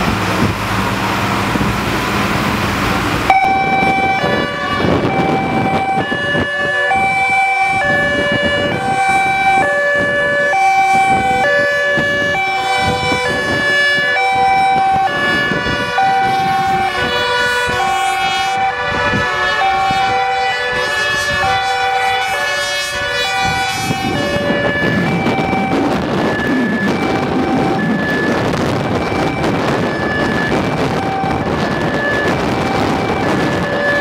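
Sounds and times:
engine and road noise: 0.0s - 34.0s
two-tone emergency sirens: 0.0s - 34.0s.

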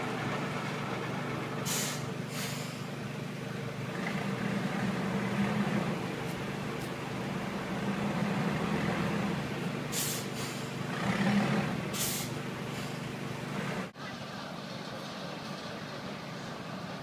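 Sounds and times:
diesel locomotive engine running: 0.0s - 17.0s
short air hisses: 1.6s - 2.9s, 9.9s - 10.8s, 11.9s - 13.0s.

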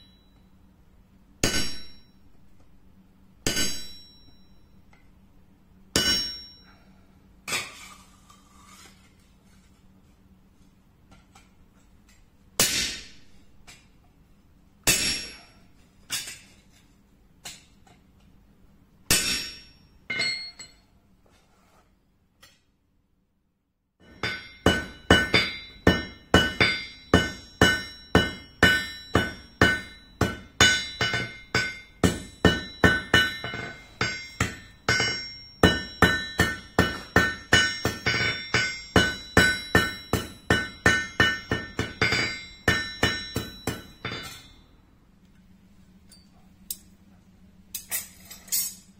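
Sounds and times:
hammer striking steel on anvil: 1.4s - 2.5s, 3.4s - 5.2s, 5.9s - 6.9s, 12.6s - 13.9s, 14.8s - 16.4s, 19.0s - 20.9s, 24.0s - 44.8s.

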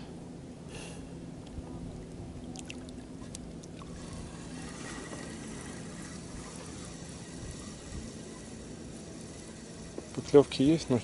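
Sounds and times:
small waves lapping against boat: 1.4s - 8.1s.

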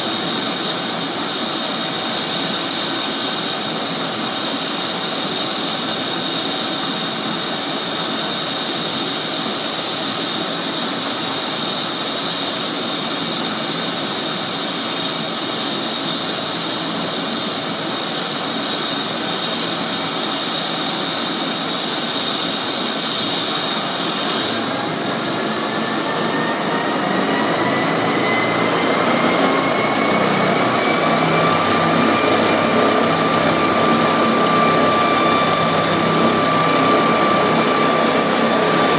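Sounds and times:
helicopter turbine whine: 0.0s - 38.9s
rotor rushing noise: 23.5s - 38.9s.

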